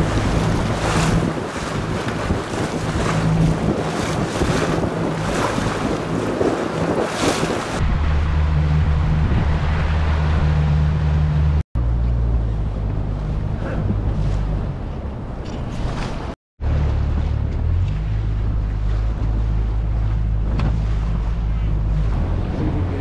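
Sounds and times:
water splashing: 0.0 - 11.6, 12.5 - 23.0
wind buffeting microphone: 0.0 - 11.6, 12.4 - 16.4
outboard motor humming: 0.0 - 15.4, 16.2 - 23.0.

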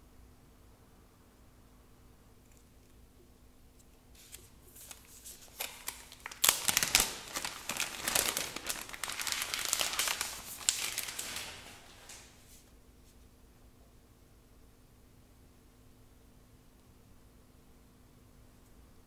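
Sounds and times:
wrapping crackling and rustling: 4.2 - 12.7.

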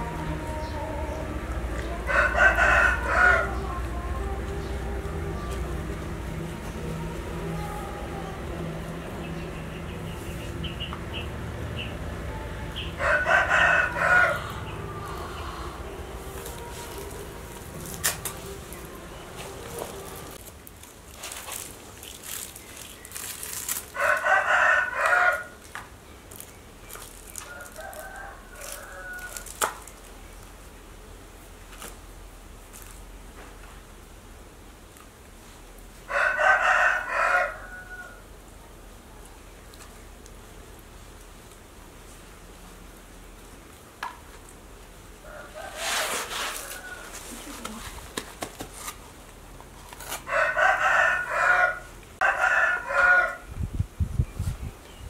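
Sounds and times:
rooster crowing: 1.9 - 4.7, 12.8 - 18.0, 23.9 - 25.6, 27.4 - 29.5, 36.1 - 38.3, 45.2 - 47.3, 50.2 - 53.5
plastic packet rustling: 16.4 - 24.2, 25.6 - 30.1.

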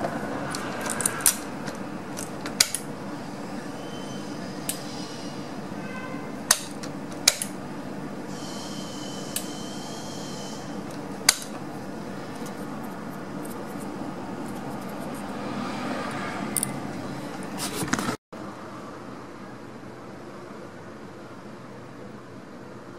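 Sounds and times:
valve motor high whine: 0.0 - 17.2
steady low hum: 0.0 - 17.6.

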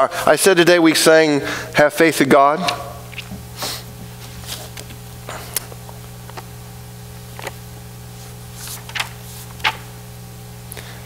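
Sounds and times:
low electrical hum: 0.0 - 11.0
book pages rustling: 4.1 - 5.0, 7.3 - 9.8.

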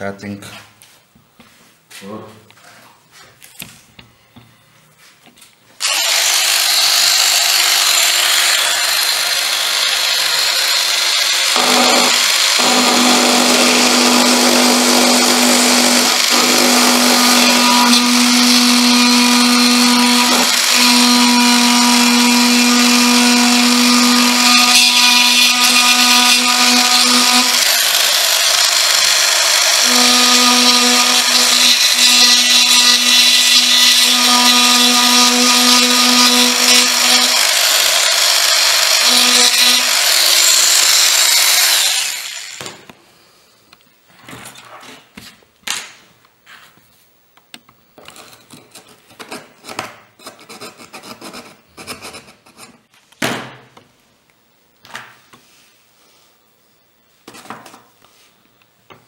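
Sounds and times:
rotary tool grinding: 5.8 - 42.6.

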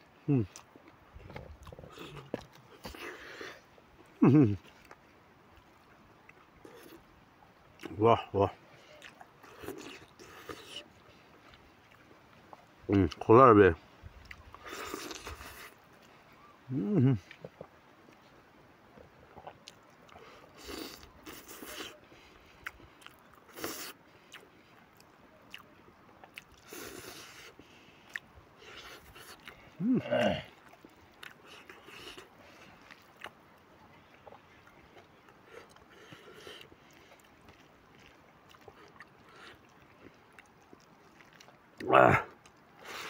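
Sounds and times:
man chewing and smacking: 0.2 - 7.1, 7.8 - 13.3, 14.2 - 43.0
brief vocal sound: 29.8 - 30.5.

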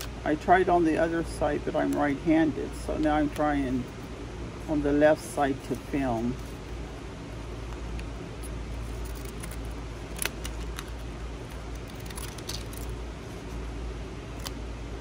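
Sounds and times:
low hum of fans: 0.0 - 15.0
scissors snipping paper: 8.9 - 13.0.

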